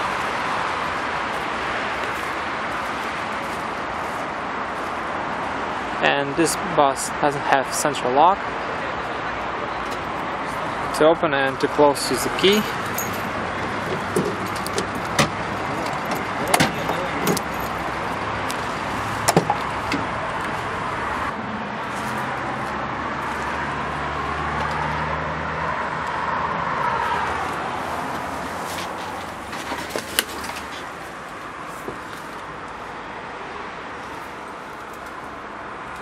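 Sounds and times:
diesel engine idling: 11.9 - 21.4
keys jangling: 12.4 - 18.0.

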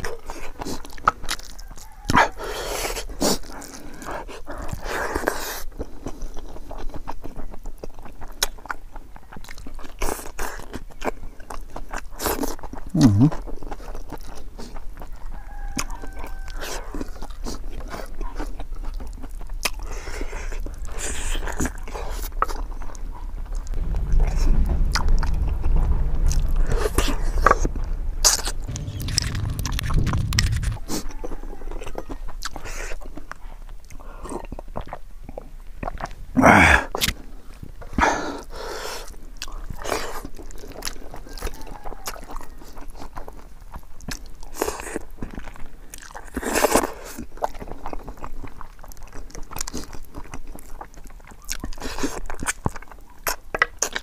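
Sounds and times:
close-miked chewing and biting: 0.0 - 23.8, 31.8 - 36.2, 38.1 - 54.0
low rumble: 20.6 - 32.4.

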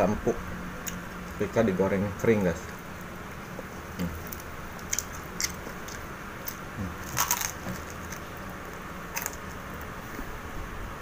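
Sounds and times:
crunchy food being chewed: 2.6 - 10.4
bones breaking: 4.2 - 9.6.

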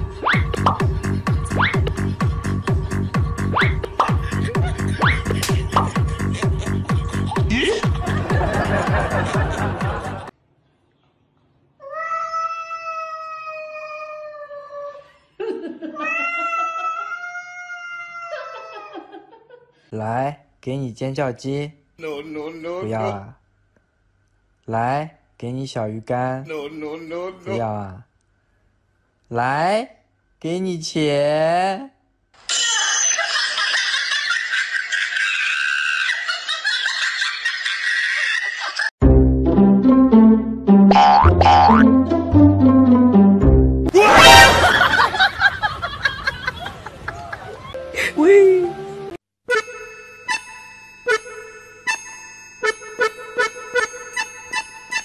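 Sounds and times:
cat yowling: 11.9 - 14.6, 16.0 - 18.9
comic plucked-string music: 39.0 - 44.7.

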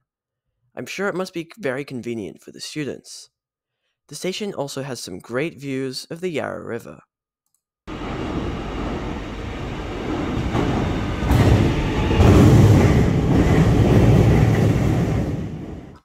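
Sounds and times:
electric train rumbling into station: 7.9 - 16.0.

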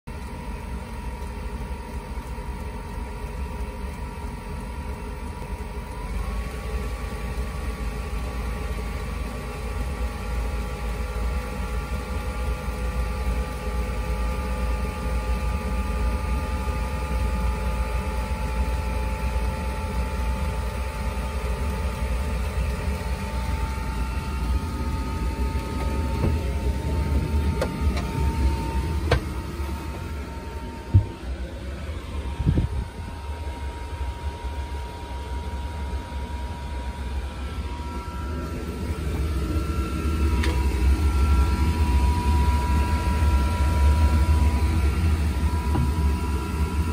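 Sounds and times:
blower motor whine: 0.1 - 46.9
heater low rumble: 16.0 - 46.9.

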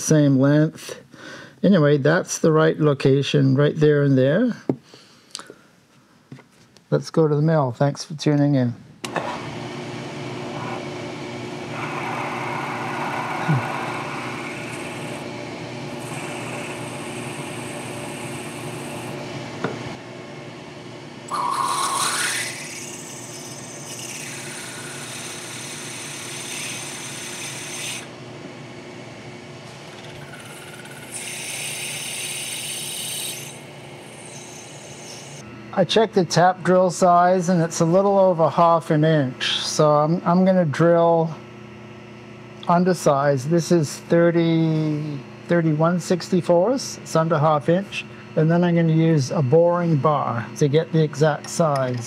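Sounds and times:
milling machine motor hum: 9.0 - 35.7
drill scraping metal: 10.4 - 15.3, 15.9 - 19.2, 21.3 - 28.1, 29.7 - 35.4.

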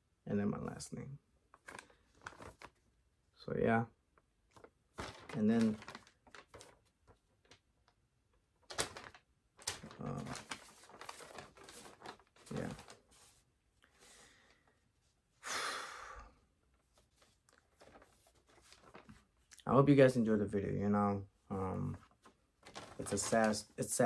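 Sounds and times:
paper rustling: 1.5 - 2.8, 4.5 - 14.6, 16.7 - 19.5, 21.8 - 24.0.

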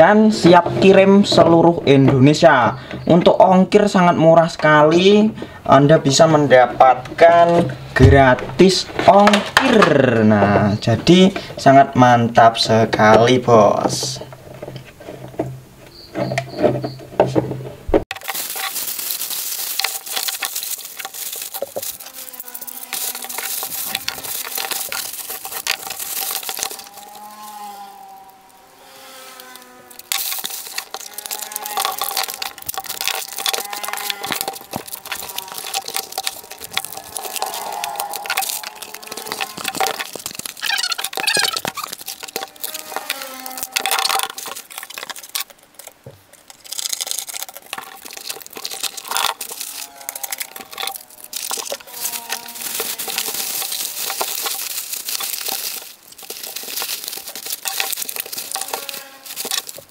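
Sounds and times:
cardboard rustling and creasing: 14.2 - 59.9
plastic bag crinkling: 18.1 - 59.9.

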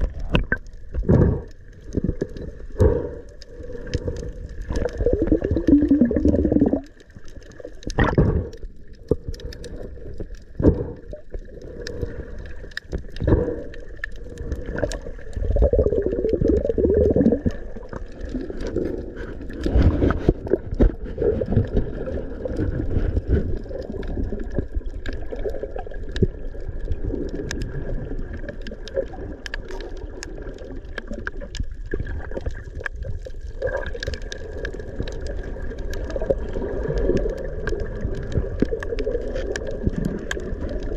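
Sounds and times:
muffled underwater bubbling: 0.0 - 40.9.

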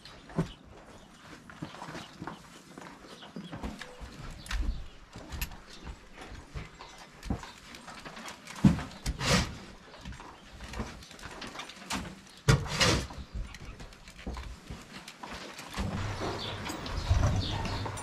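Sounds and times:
shovel scooping feed: 9.0 - 9.7.

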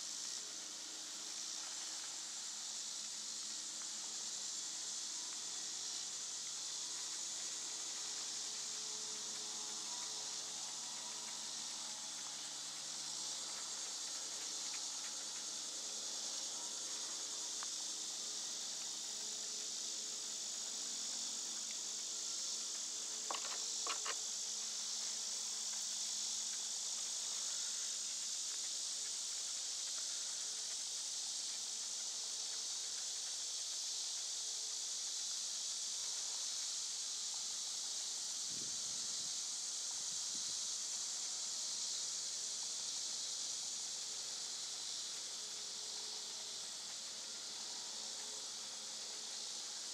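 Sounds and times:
insects chorus: 0.0 - 49.9.

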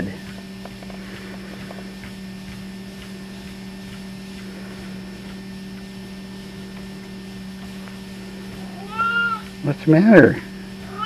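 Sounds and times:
treadmill humming: 0.0 - 11.0.

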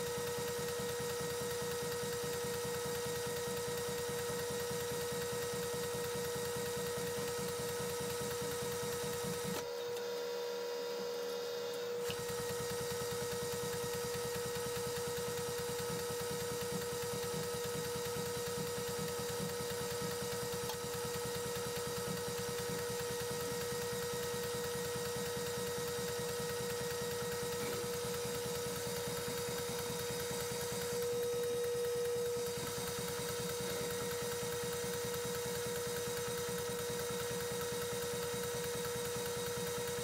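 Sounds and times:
milling machine running: 11.9 - 40.0.

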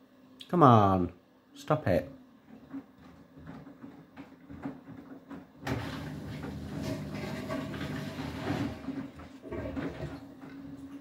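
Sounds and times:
washing machine drum turning: 2.8 - 11.0.

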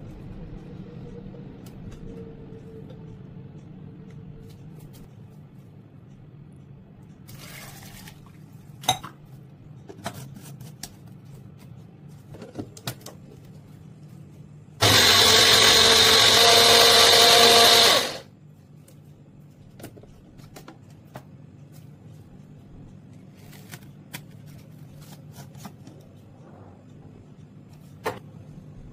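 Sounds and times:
electric blender running: 14.8 - 18.3.

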